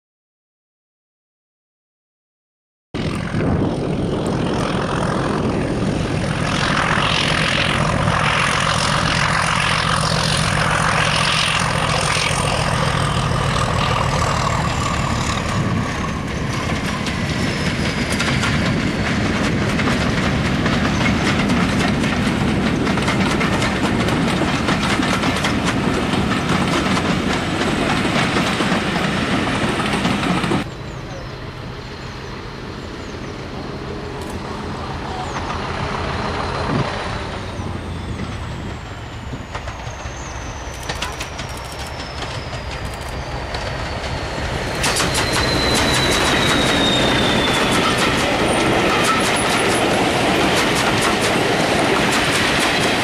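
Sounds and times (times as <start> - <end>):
diesel locomotive passing: 3.0 - 53.0
train wheels clacking on rail joints: 6.3 - 30.7, 35.2 - 53.0.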